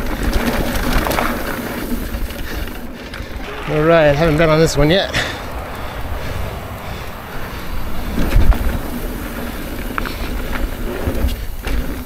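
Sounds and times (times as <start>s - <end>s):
wind buffeting microphone: 3.2s - 11.3s.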